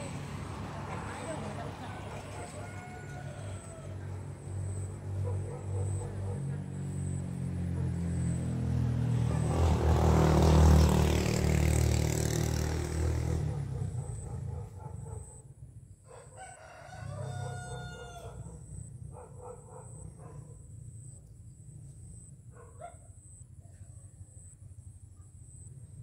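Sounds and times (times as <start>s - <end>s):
vehicle engine rumbling: 0.0s - 16.0s
rooster crowing: 1.2s - 4.3s, 16.1s - 18.7s.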